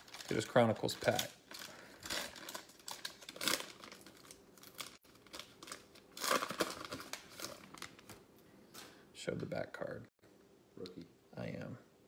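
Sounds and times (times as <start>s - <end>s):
foil wrapper tearing and crinkling: 0.0s - 8.2s.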